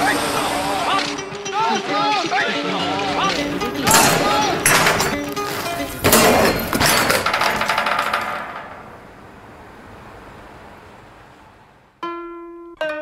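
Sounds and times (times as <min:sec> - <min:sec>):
bike rolling with rapid clicking: 0:03.3 - 0:09.2.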